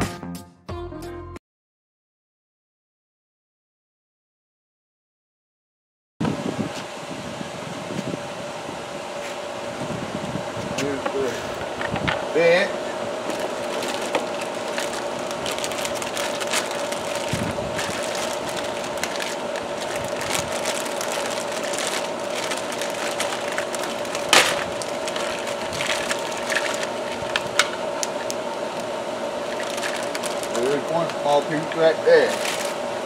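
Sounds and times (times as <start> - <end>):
steady hum: 6.2 - 33.0
plastic bags crinkling: 13.2 - 33.0.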